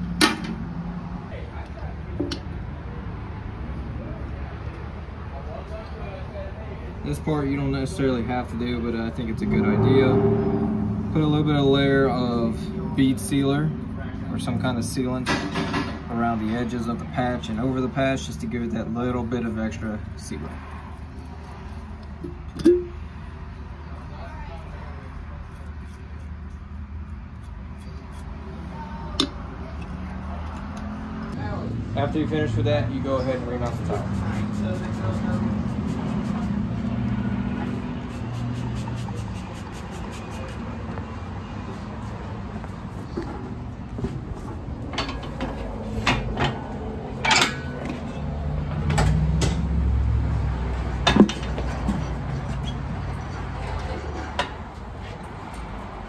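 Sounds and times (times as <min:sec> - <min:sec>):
low hum: 0:09.1 - 0:11.5
metal clanks and knocks: 0:15.2 - 0:16.0, 0:44.9 - 0:46.6, 0:47.2 - 0:49.7, 0:51.0 - 0:52.2.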